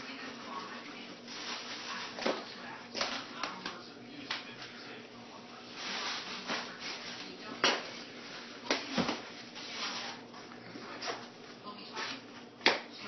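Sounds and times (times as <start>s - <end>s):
wrapping paper rustling: 0.5s - 3.6s, 5.5s - 10.3s.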